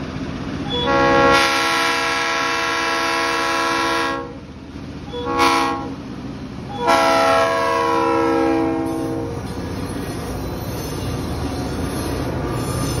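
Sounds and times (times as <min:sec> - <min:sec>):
low rumble of train: 0:00.0 - 0:13.0
locomotive air horn blasts: 0:00.6 - 0:04.4, 0:05.1 - 0:06.0, 0:06.7 - 0:09.5.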